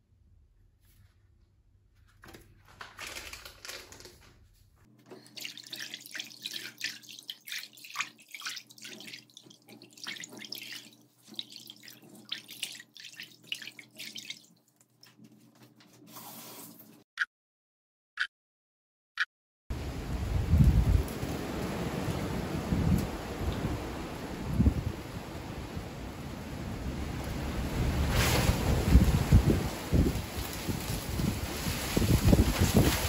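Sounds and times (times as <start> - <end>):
splashes and knocks in sink: 5.1 - 14.5
water running from a tap: 5.1 - 14.8.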